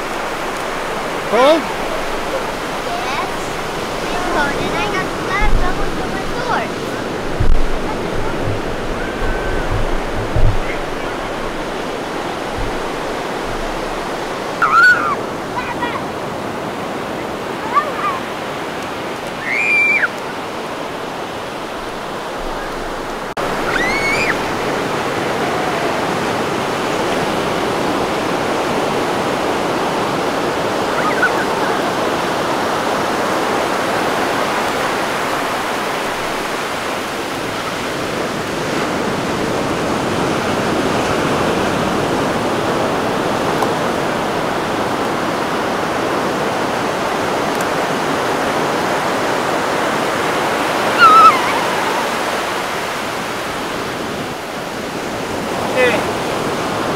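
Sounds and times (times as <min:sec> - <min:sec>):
ocean surf breaking on beach: 0:00.0 - 0:56.9
short high cries: 0:19.4 - 0:20.1, 0:50.9 - 0:52.2.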